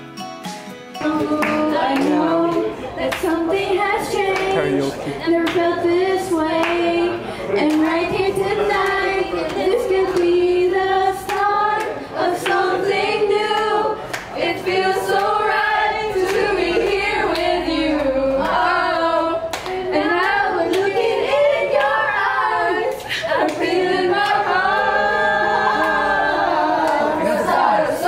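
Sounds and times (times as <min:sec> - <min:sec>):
hands clapping along: 0:01.0 - 0:03.4, 0:04.2 - 0:04.7, 0:05.4 - 0:05.7, 0:06.5 - 0:06.9, 0:07.6 - 0:08.0, 0:08.7 - 0:10.4, 0:11.2 - 0:12.8, 0:13.4 - 0:15.4, 0:16.2 - 0:18.8, 0:19.5 - 0:21.1, 0:21.7 - 0:22.0, 0:22.9 - 0:24.7, 0:25.8 - 0:26.0, 0:26.8 - 0:27.1
girls singing together: 0:01.0 - 0:28.0.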